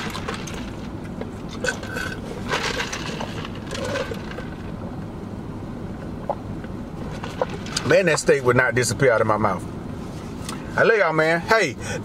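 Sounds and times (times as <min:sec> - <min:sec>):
low background hum: 0:00.0 - 0:12.0
man gulping a drink: 0:01.5 - 0:04.5.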